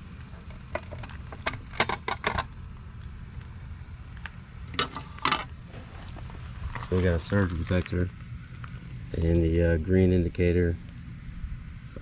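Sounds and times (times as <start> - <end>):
steady low hum: 0.0 - 12.0
metal cover clicks and clatter: 0.8 - 2.5.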